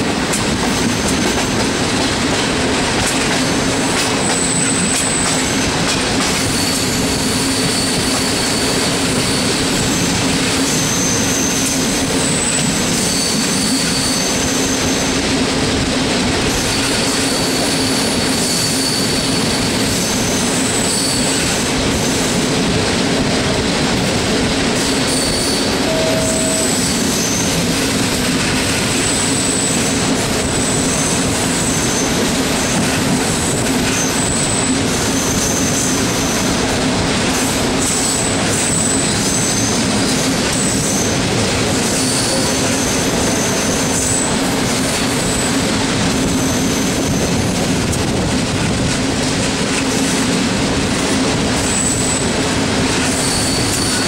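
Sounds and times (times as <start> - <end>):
rumble of wheels on rails: 0.0 - 54.0
high-pitched wheel squeals: 6.4 - 15.1, 16.6 - 22.2, 24.8 - 27.7, 29.0 - 32.8, 41.9 - 45.6, 51.6 - 52.4, 53.0 - 54.0.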